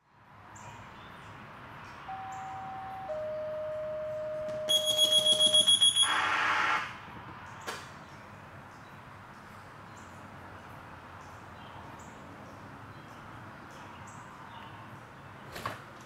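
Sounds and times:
steady alert tone: 2.1 - 6.8
rapid high-pitched electronic beeping: 4.7 - 6.8.

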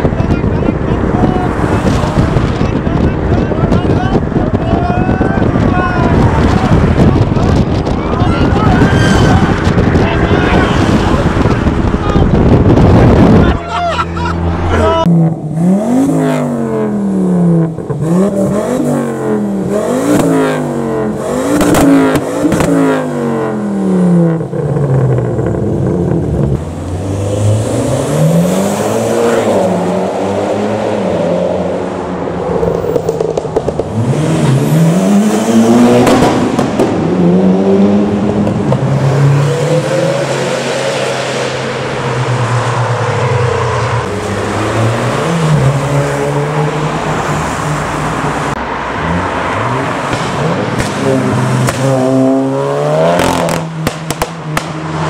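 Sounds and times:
car engines revving: 0.0 - 55.0.

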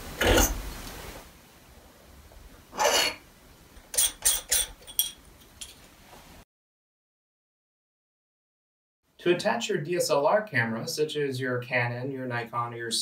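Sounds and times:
scrape: 2.8 - 3.2.

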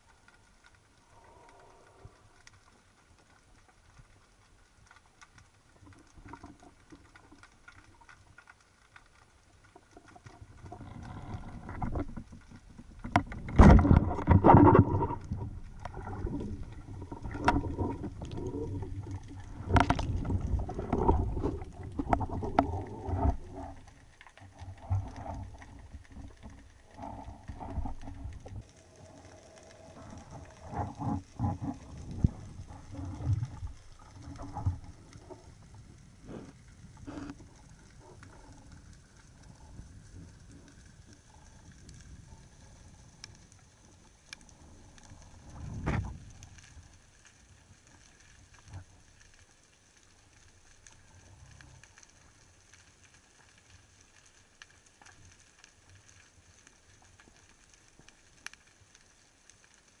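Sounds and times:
faint steady hiss: 0.0 - 60.0
muffled handling knocks underwater: 13.0 - 16.0.

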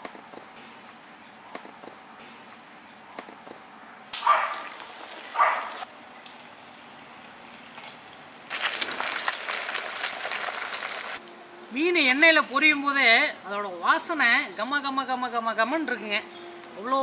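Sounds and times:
fish sizzling in hot oil: 8.4 - 11.2.

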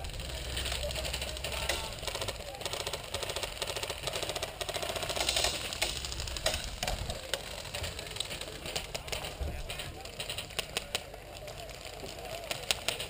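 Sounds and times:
airsoft gun full-auto fire: 0.0 - 9.4.

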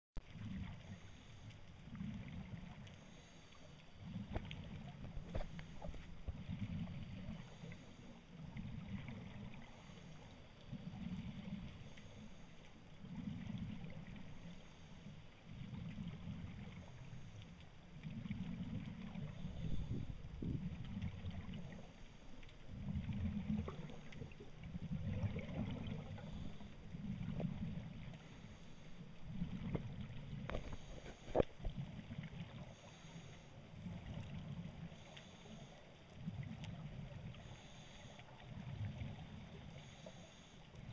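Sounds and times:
muffled underwater rumbling: 3.9 - 12.0, 17.8 - 33.0
faint clicks: 20.8 - 22.7.

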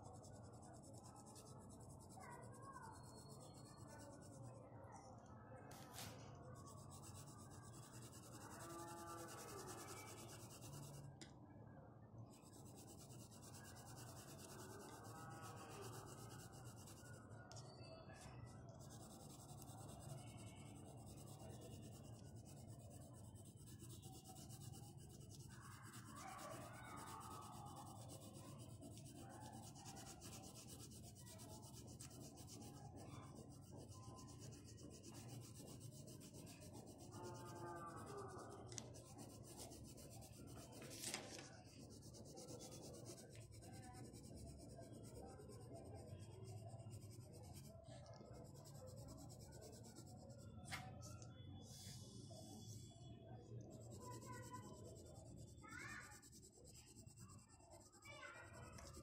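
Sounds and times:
pencil scratching on paper: 0.0 - 4.5, 5.7 - 11.1, 12.3 - 17.6, 18.2 - 50.6, 53.6 - 59.0.

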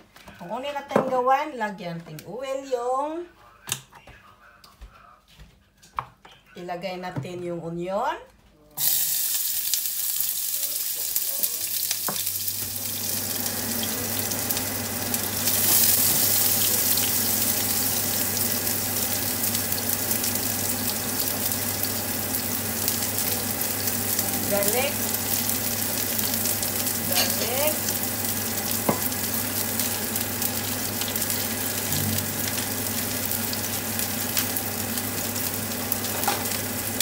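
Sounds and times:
onion sizzling in hot oil: 8.8 - 37.0.

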